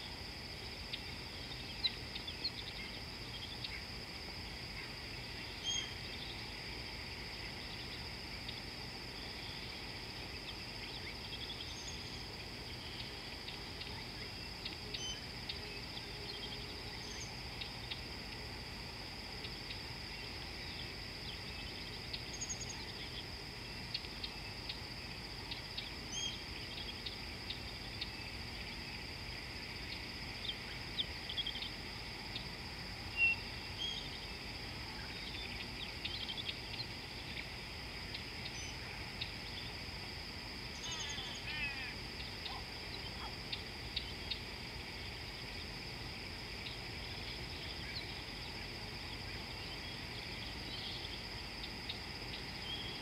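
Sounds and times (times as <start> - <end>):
high-pitched insect drone: 0.0 - 53.0.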